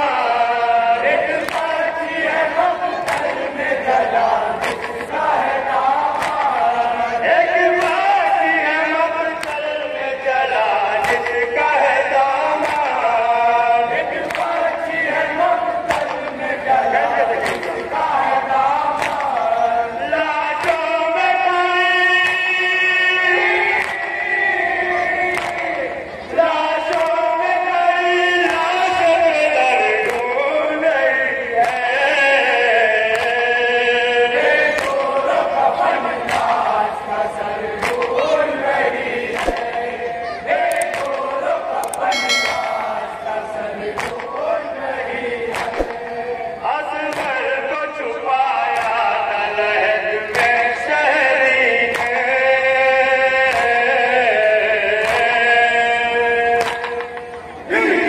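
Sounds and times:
men chanting through microphones: 0:00.0 - 0:58.0
chest-beating slaps: 0:03.1 - 0:03.4, 0:06.2 - 0:06.6, 0:17.4 - 0:17.9, 0:37.8 - 0:38.3, 0:39.4 - 0:39.9, 0:40.6 - 0:43.1, 0:44.0 - 0:44.4, 0:45.5 - 0:46.0, 0:56.6 - 0:57.5.

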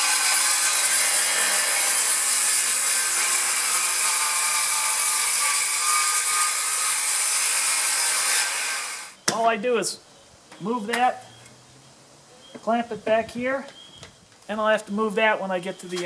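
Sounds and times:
circular saw cutting wood: 0:00.0 - 0:09.2.

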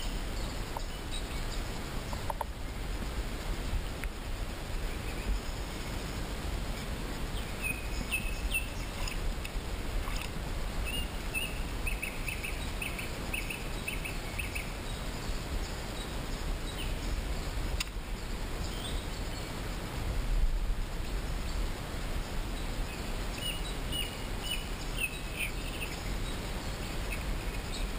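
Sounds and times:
small bird chirping: 0:06.7 - 0:19.6, 0:22.5 - 0:27.9.

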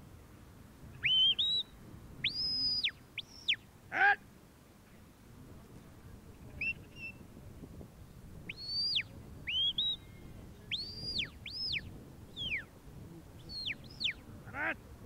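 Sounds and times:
shrill whistles: 0:01.0 - 0:03.6, 0:08.5 - 0:11.8.

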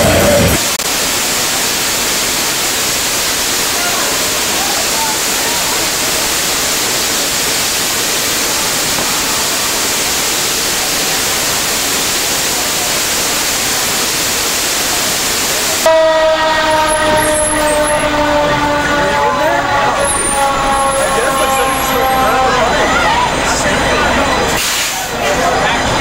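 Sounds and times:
water spraying from pipe: 0:00.1 - 0:15.9, 0:24.5 - 0:25.2
fire engine horn-like tone: 0:08.2 - 0:10.2, 0:15.8 - 0:23.4.

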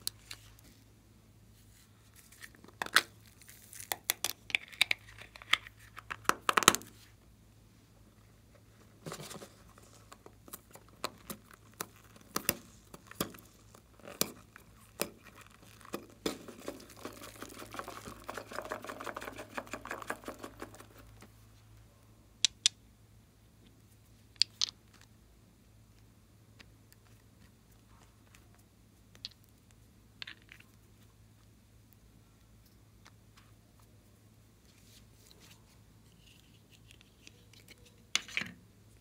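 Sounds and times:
plastic toys tapping and clicking: 0:15.8 - 0:21.1.

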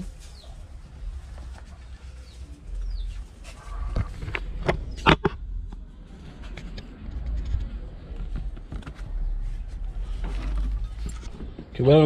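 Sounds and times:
low wind rumble: 0:03.7 - 0:11.8.

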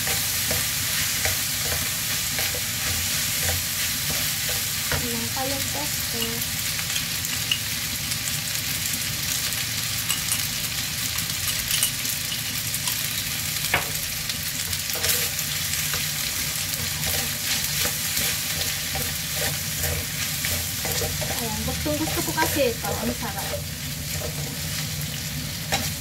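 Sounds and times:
pasta sizzling in a frying pan: 0:00.0 - 0:26.0.

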